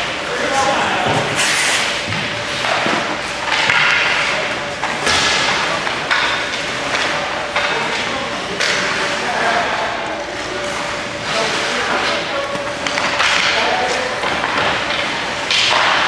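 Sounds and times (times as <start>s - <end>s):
skate blades scraping ice: 1.4s - 2.6s
sticks and puck knocking: 2.1s - 8.9s, 11.9s - 16.0s.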